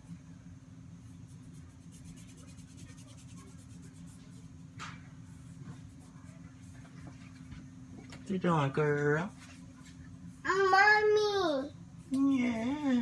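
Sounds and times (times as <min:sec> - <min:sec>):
steady low hum: 0:00.0 - 0:13.0
scratchy rubbing of wax strip: 0:01.3 - 0:04.5.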